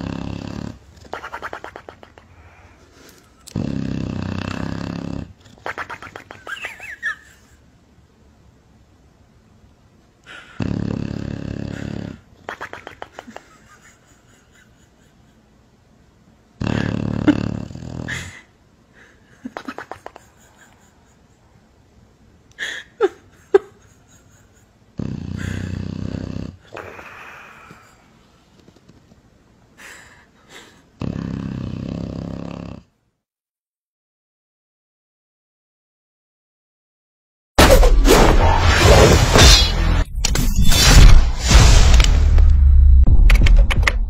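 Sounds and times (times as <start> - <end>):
dog snoring: 0.0 - 0.9, 3.5 - 5.4, 10.6 - 12.2, 16.6 - 18.3, 25.0 - 27.1, 31.0 - 33.0.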